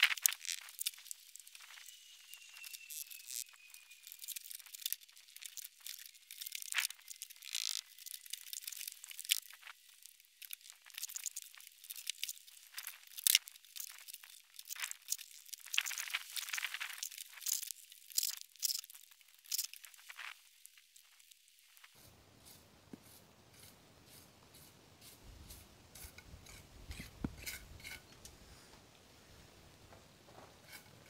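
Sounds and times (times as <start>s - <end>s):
trowel scraping mortar on stone: 22.0s - 28.1s.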